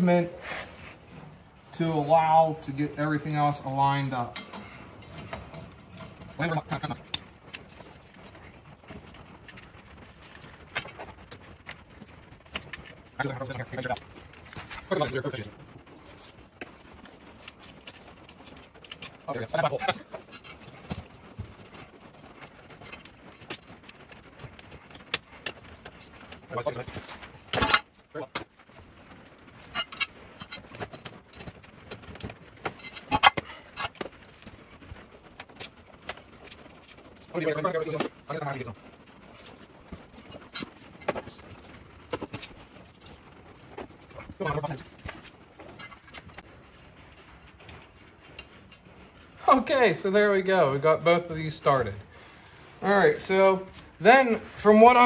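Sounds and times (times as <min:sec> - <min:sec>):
metal clinks and knocks: 0:16.8 - 0:49.2.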